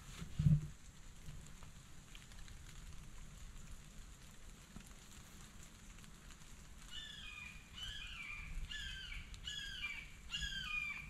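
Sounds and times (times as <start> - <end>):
hawk calling: 7.0 - 11.0.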